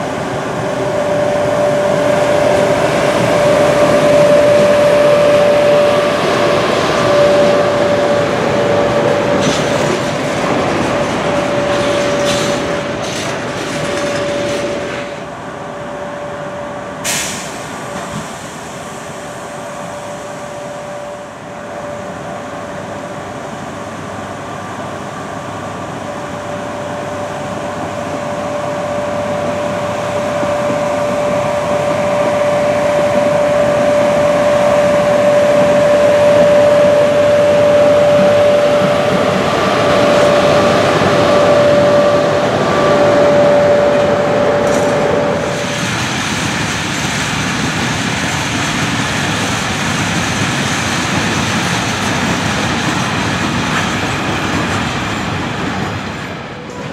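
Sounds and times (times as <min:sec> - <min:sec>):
electric locomotive hum: 0:00.0 - 0:56.9
freight train wheels rumbling: 0:00.0 - 0:56.9
sharp hiss: 0:17.0 - 0:20.4.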